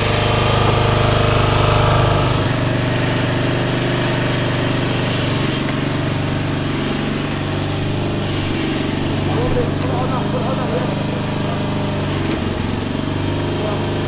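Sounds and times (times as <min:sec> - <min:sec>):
lawn mower engine under load: 0:00.0 - 0:14.0.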